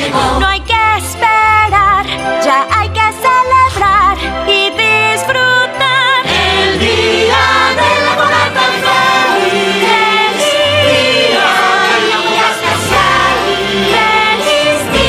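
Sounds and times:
choir singing festive song: 0.0 - 1.6, 5.7 - 15.0
instrumental backing: 0.8 - 15.0.

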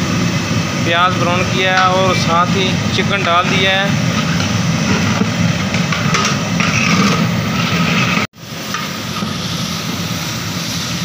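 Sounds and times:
metal ladle stirring in pot: 3.3 - 8.3
chicken and onions frying in oil: 3.9 - 11.0.

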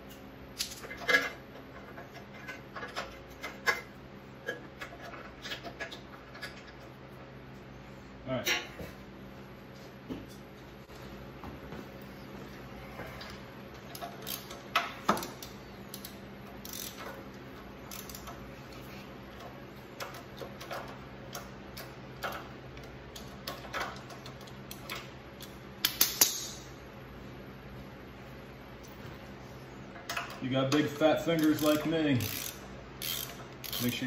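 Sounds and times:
socket wrench clicking: 13.9 - 17.2, 17.9 - 18.4, 30.1 - 34.0.

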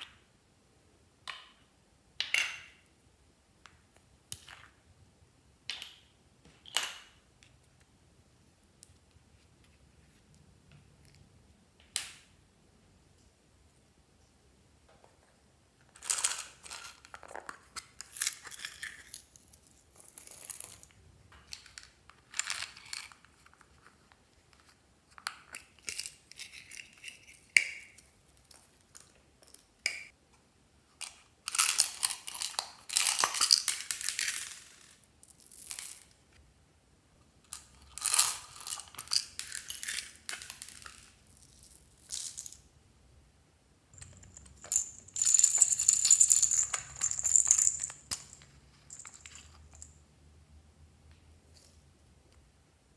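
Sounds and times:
plastic beads rattling into glass dish: 37.5 - 42.6, 44.0 - 50.0.

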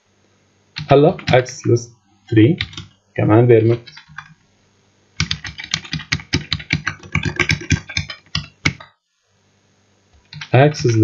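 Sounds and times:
fast typing on keyboard: 0.8 - 1.5, 2.6 - 2.9, 3.7 - 4.3, 5.2 - 8.9, 10.3 - 11.0.

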